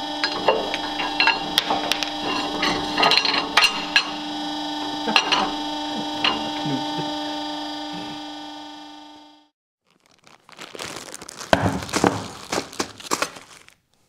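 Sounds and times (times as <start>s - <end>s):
metal clinks and knocks: 0.0s - 6.7s.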